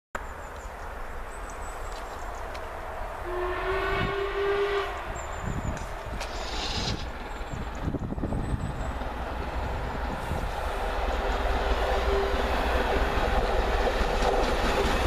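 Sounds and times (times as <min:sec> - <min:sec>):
steam locomotive whistle: 0:03.2 - 0:05.3, 0:11.9 - 0:12.6.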